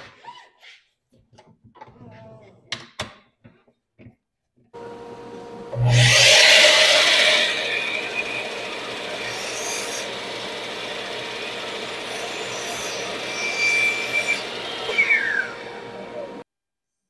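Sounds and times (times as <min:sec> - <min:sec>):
woodworking tool rasping on wood: 0:05.8 - 0:15.8.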